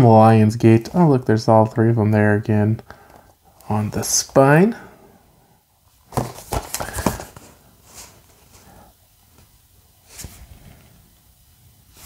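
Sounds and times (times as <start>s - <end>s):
plastic case handling rustles: 6.0s - 8.7s.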